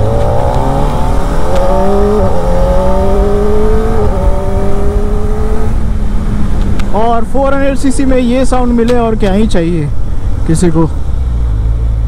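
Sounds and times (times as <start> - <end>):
motorcycle engine accelerating: 0.0 - 7.2.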